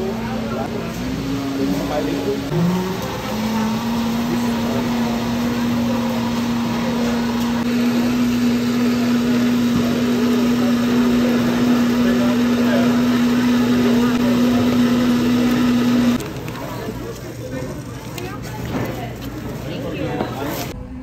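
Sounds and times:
machine humming: 0:01.2 - 0:16.2.

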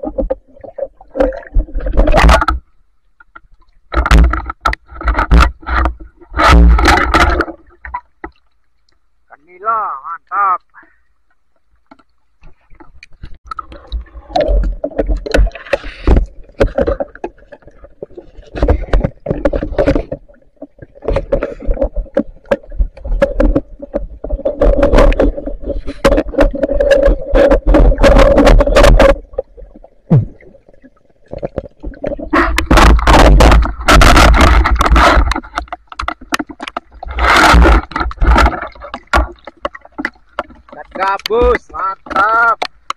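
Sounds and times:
river water sloshing and splashing: 0:00.0 - 0:02.8, 0:03.4 - 0:09.1, 0:11.6 - 0:42.9
clicks and knocks: 0:03.2 - 0:08.4.

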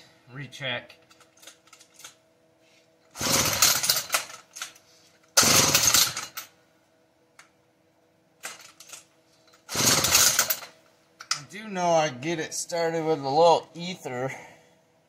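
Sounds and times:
chainsaw pull starter turning over: 0:03.2 - 0:04.5, 0:05.4 - 0:06.4, 0:09.6 - 0:10.7.

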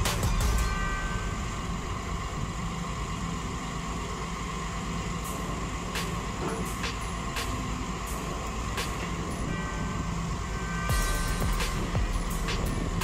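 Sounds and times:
diesel engines running: 0:00.0 - 0:13.0
high whine: 0:00.0 - 0:13.0.

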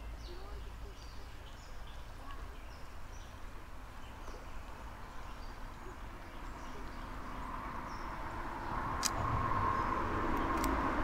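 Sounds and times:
low outdoor rumble: 0:00.0 - 0:11.0
road traffic noise: 0:00.0 - 0:11.0
sharp click: 0:09.0 - 0:09.2.

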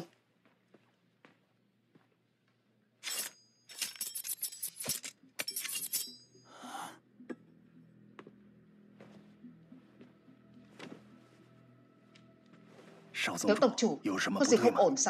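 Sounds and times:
faint background music: 0:00.0 - 0:15.0
metallic jingling and clinking: 0:03.0 - 0:06.4.

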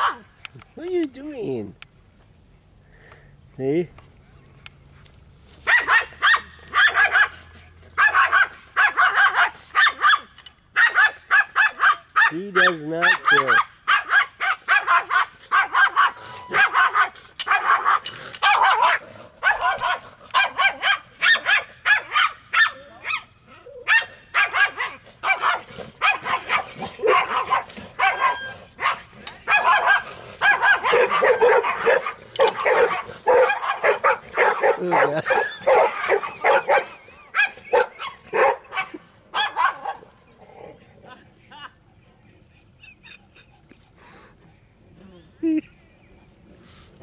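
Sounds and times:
small dog barking and yapping: 0:00.0 - 0:00.4, 0:05.6 - 0:40.2.

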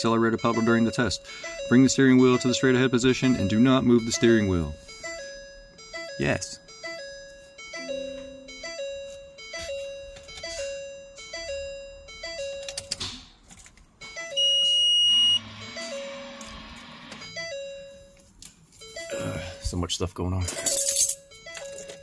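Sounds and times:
two-note vehicle warning chime: 0:00.0 - 0:13.0, 0:14.0 - 0:22.0
loud high-pitched beep: 0:14.2 - 0:15.9.

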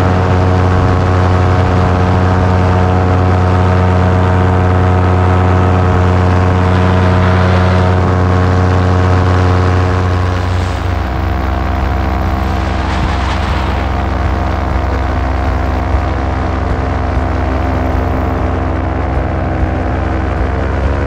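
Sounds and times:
paramotor engine droning: 0:00.0 - 0:21.0
wind noise: 0:00.0 - 0:21.0.

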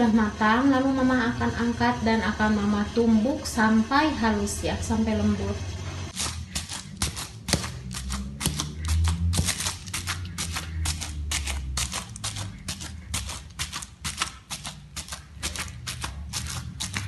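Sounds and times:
pestle thudding rice in bowl: 0:06.1 - 0:17.0.

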